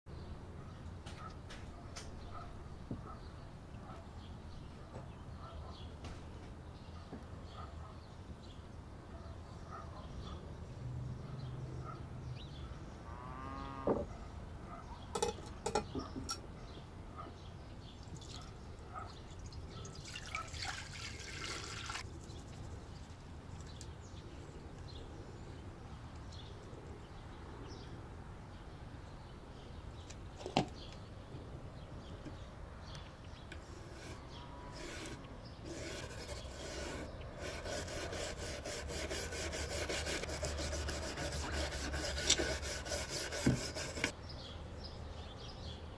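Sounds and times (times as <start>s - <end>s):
brush scrubbing knife blade: 33.8s - 44.1s.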